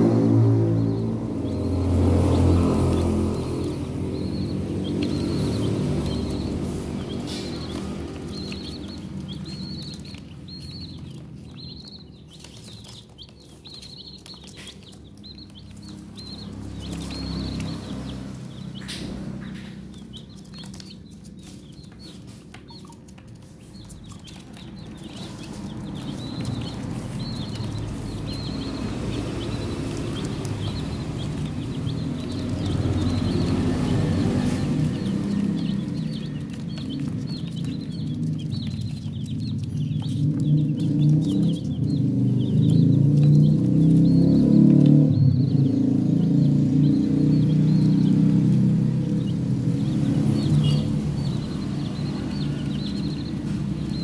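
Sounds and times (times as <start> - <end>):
baby chicks peeping: 0.0 - 54.0.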